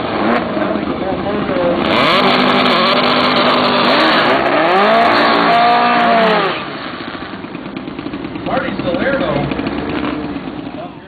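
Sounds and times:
drag car engine revving: 0.0s - 11.0s.

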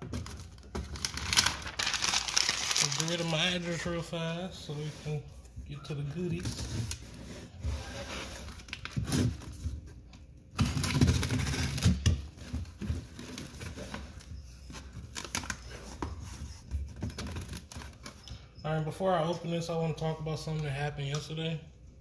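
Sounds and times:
paper and cardboard scraping: 1.4s - 9.5s.

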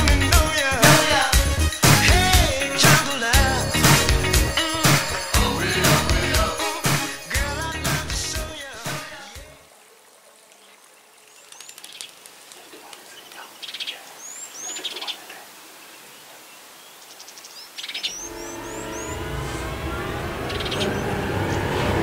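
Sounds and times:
birds chirping and trilling: 10.4s - 22.0s.

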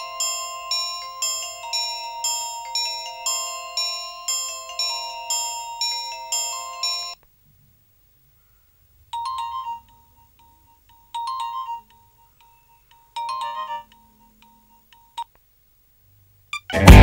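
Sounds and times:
phone ringback trill: 0.0s - 7.2s, 9.2s - 15.3s.

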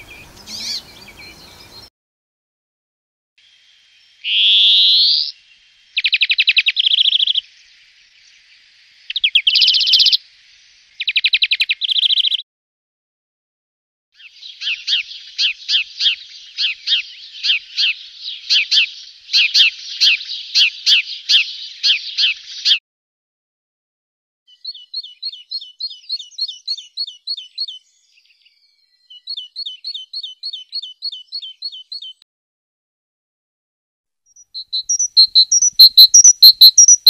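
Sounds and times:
sparrow chirping: 0.0s - 1.9s, 6.0s - 7.5s, 9.1s - 10.2s, 11.0s - 12.4s, 14.2s - 22.8s, 24.5s - 32.2s, 34.3s - 37.0s.

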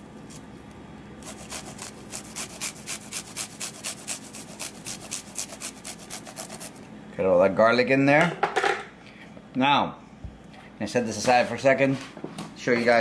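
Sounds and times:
garlic grated on metal grater: 1.2s - 6.8s.

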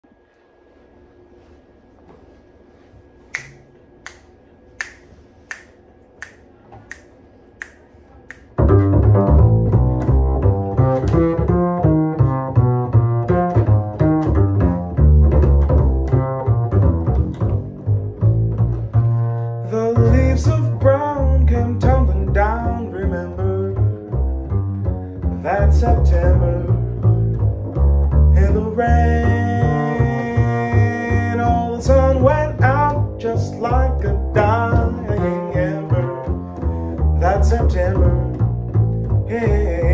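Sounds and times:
finger snaps: 3.2s - 8.9s
plucked double bass: 8.4s - 39.9s.

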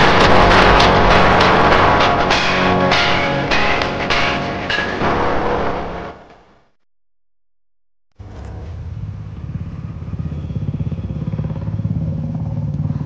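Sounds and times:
small engine idling: 8.7s - 13.0s.

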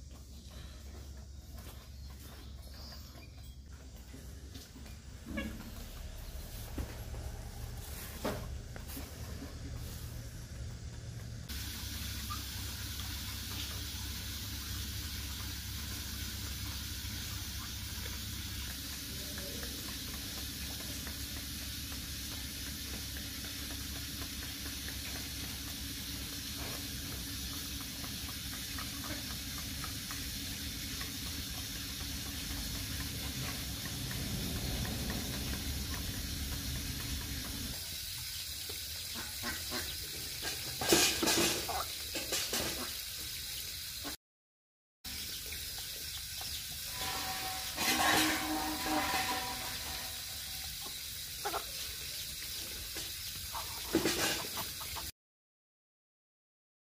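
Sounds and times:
low hum: 46.8s - 50.8s.

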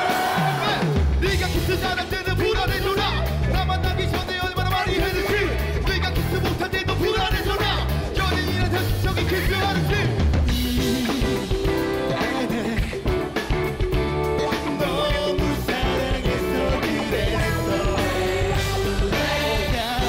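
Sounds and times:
crowd singing in unison: 0.0s - 1.9s, 14.5s - 20.0s
live rock band playing: 0.0s - 20.0s.

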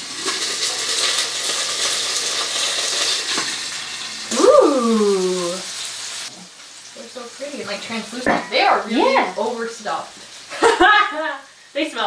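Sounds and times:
dumplings sizzling in oil: 0.0s - 12.0s
person saying ooh: 4.3s - 5.7s.

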